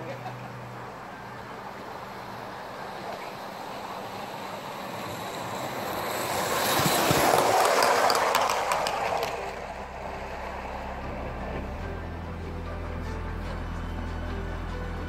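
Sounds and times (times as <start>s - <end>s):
wheels clicking on track: 0.0s - 15.0s
model steam train running: 1.0s - 12.0s.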